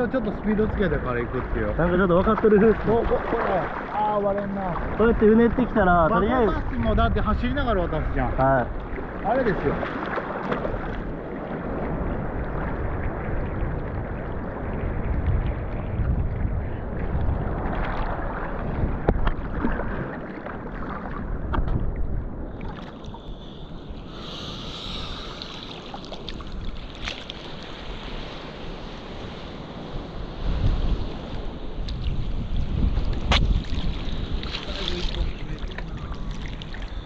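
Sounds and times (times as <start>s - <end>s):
wind buffeting microphone: 0.0s - 37.0s
water sloshing and lapping: 2.3s - 5.3s, 8.1s - 30.1s, 31.1s - 37.0s
small splashes and knocks: 9.7s - 11.1s, 26.2s - 27.6s, 33.1s - 36.8s.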